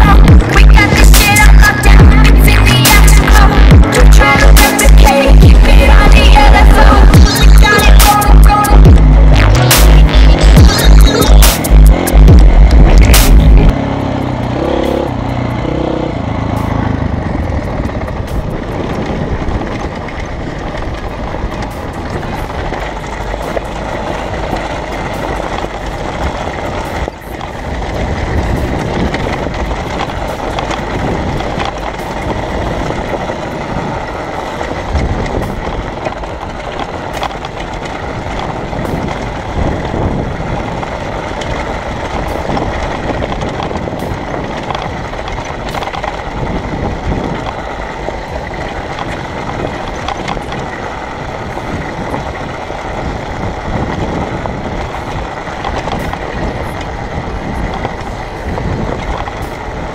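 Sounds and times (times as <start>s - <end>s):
tyres on loose rock: 0.0s - 13.7s
dirt bike engine running: 0.0s - 59.9s.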